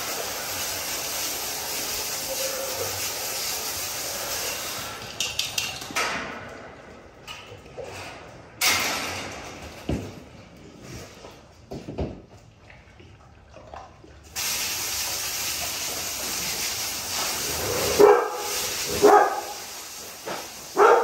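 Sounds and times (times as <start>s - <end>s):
steady spray hiss: 0.0s - 5.6s, 14.4s - 21.0s.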